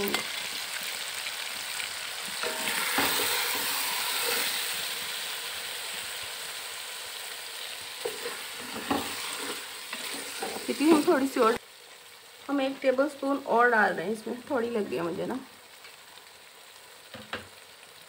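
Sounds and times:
food sizzling in a pot: 0:00.0 - 0:18.0.

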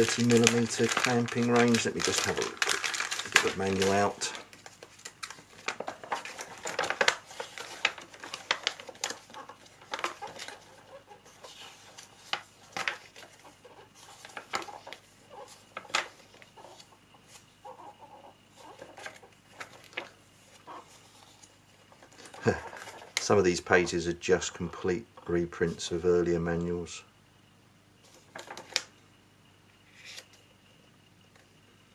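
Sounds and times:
paper rustling and pages turning: 0:00.0 - 0:24.0, 0:28.0 - 0:28.9, 0:29.9 - 0:30.4.

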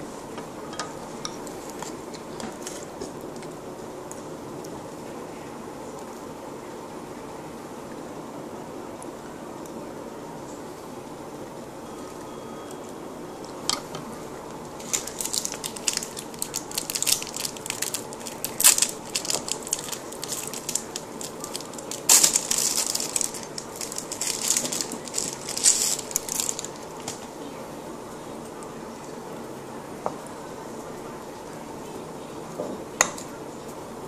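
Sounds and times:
crunching dry powder chewing: 0:14.6 - 0:27.3.

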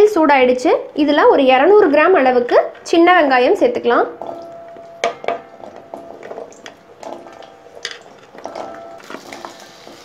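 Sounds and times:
oil sizzling: 0:04.0 - 0:10.0
shallots clattering into metal pan: 0:04.2 - 0:10.0.

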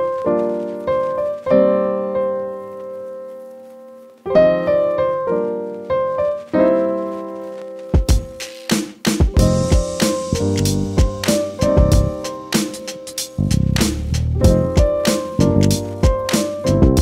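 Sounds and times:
keyboard playing chords: 0:09.2 - 0:17.0.

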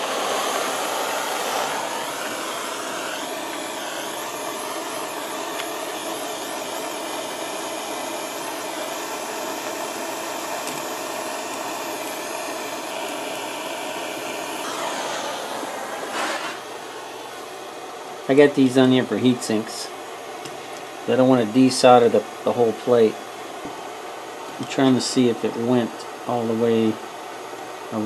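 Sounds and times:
soldering torch hissing: 0:00.0 - 0:25.6.

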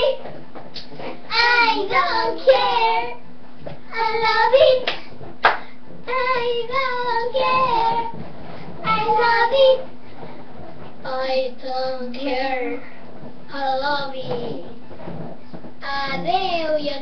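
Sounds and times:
girls singing: 0:00.0 - 0:00.3, 0:01.3 - 0:03.2, 0:03.9 - 0:05.0, 0:06.1 - 0:08.2, 0:08.8 - 0:09.9.

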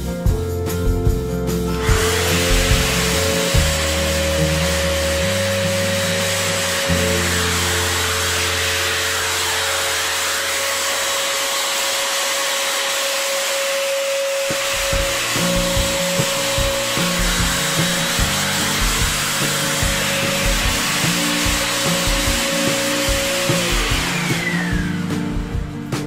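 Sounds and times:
background music with beat: 0:00.0 - 0:08.5, 0:14.5 - 0:26.0
handheld vacuum running: 0:01.7 - 0:25.9.

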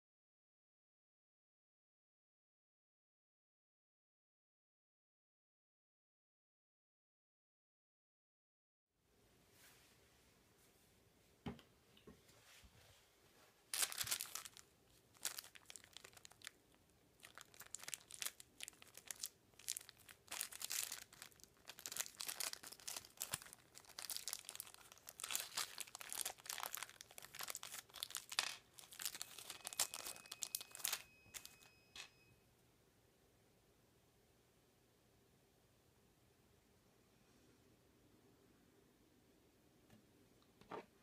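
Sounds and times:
plastic bag crinkling: 0:13.7 - 0:31.7.

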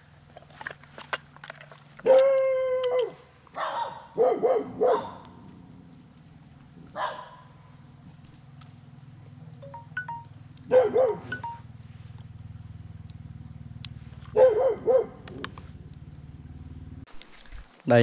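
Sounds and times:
dog barking: 0:02.0 - 0:05.5, 0:06.9 - 0:07.6, 0:10.7 - 0:11.5, 0:14.3 - 0:15.4
short electronic beeps: 0:09.6 - 0:10.4, 0:11.3 - 0:11.6.

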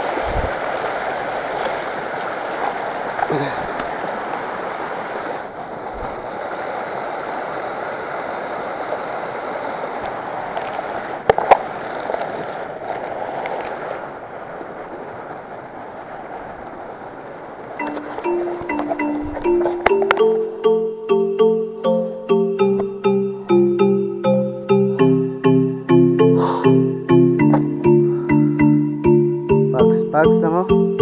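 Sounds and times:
floodwater rushing over rocks: 0:00.0 - 0:21.5.

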